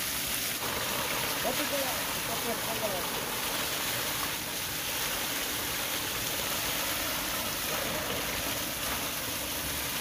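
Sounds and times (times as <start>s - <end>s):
water gushing and splashing: 0.0s - 10.0s.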